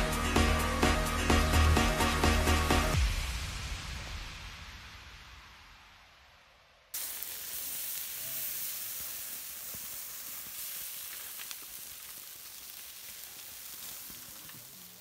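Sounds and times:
burning matches hissing: 7.0 - 15.0
faint crackles: 7.0 - 15.0.

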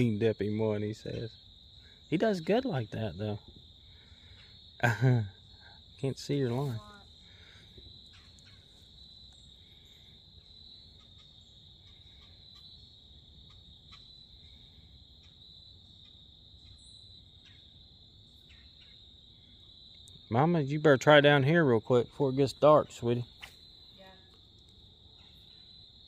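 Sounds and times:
insects chirring: 0.0 - 26.0
faint ticks: 7.8 - 8.6, 19.9 - 20.2, 24.3 - 24.8.

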